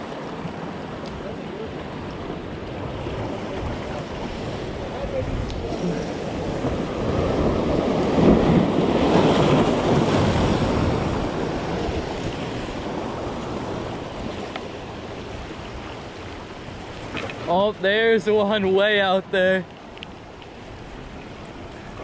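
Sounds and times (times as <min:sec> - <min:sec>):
ocean surf breaking on rocks: 0:00.0 - 0:22.0
wind buffeting microphone: 0:01.2 - 0:18.0.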